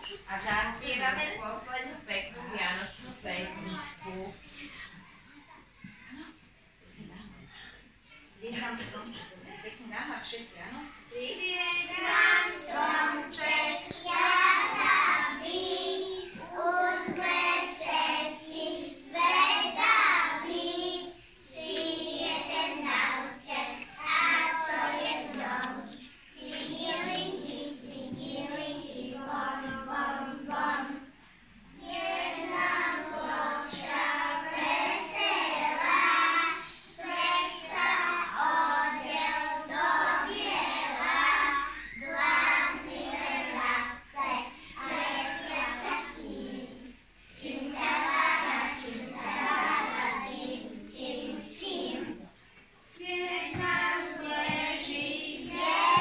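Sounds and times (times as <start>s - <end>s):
young children singing: 11.8s - 56.0s.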